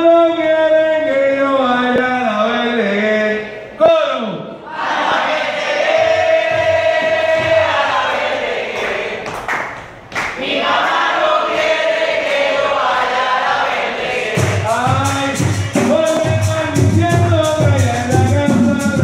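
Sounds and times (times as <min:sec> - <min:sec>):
group singing call-and-response: 0:04.6 - 0:16.3
drums and hand percussion: 0:05.8 - 0:08.9, 0:10.8 - 0:19.0.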